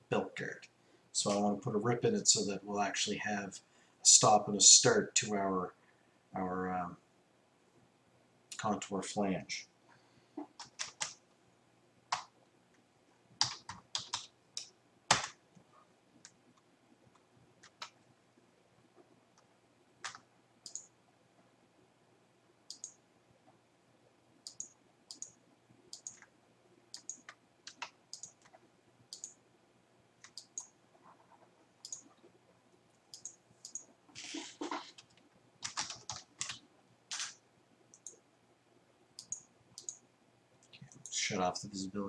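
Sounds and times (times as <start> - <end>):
computer mouse clicking: 19.4 - 20.9, 22.7 - 23.0, 24.4 - 26.3, 26.9 - 29.4, 30.2 - 32.2, 33.1 - 38.2, 39.2 - 40.0.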